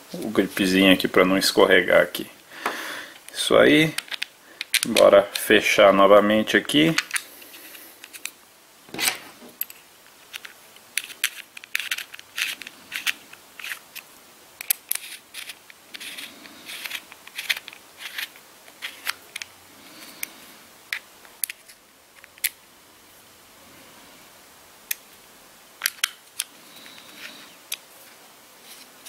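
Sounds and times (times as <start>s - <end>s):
plastic parts clicking and scraping: 3.2s - 5.5s, 6.9s - 19.5s, 20.9s - 22.6s, 25.8s - 27.9s.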